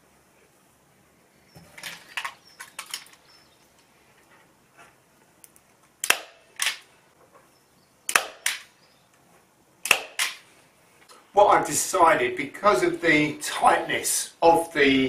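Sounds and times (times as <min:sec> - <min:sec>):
staple gun firing into wood: 0:06.0 - 0:06.8, 0:08.1 - 0:08.7, 0:09.8 - 0:10.4.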